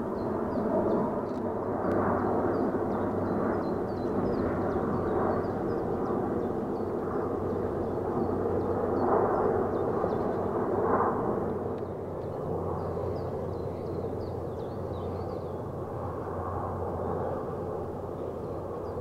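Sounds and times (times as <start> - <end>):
small birds chirping: 0.0 - 10.6, 11.7 - 16.1
turboprop engines droning: 0.0 - 19.0.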